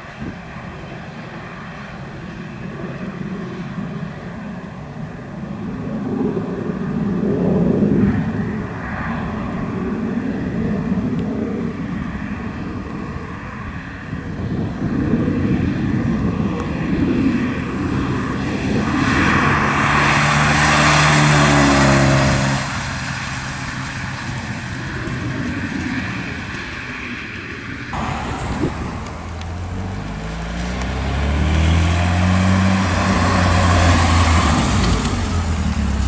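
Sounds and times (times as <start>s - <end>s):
car engine passing by: 15.1s - 26.6s, 27.9s - 36.0s.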